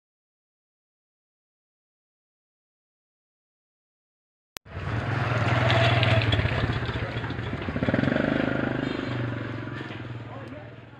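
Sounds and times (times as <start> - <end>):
vehicle engine humming: 4.7 - 10.9.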